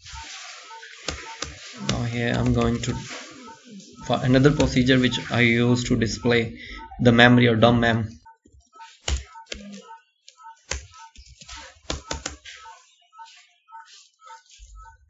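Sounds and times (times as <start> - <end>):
keyboard typing clicks: 0.2 - 5.2, 8.2 - 12.8.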